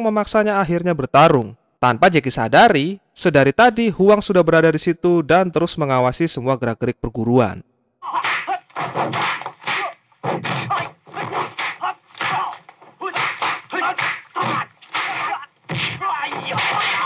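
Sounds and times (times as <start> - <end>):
punch whooshes and thwacks: 8.2 - 17.0.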